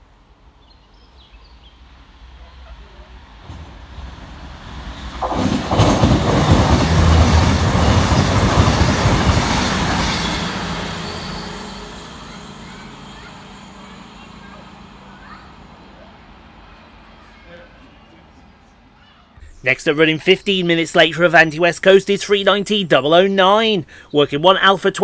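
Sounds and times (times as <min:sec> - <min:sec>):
diesel train passing at speed: 0:00.0 - 0:19.6
wheels on rails: 0:02.5 - 0:17.9.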